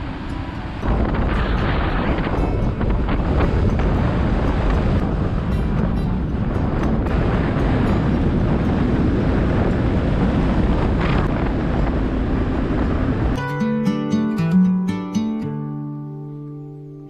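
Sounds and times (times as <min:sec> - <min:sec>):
wind buffeting microphone: 0:00.0 - 0:13.5.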